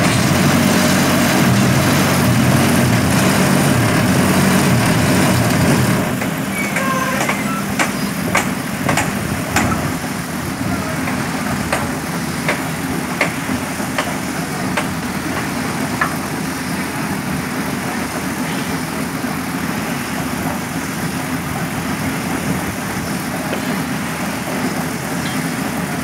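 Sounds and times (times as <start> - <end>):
concrete mixer drum drone: 0.0 - 26.0
sharp knocks: 6.2 - 9.8.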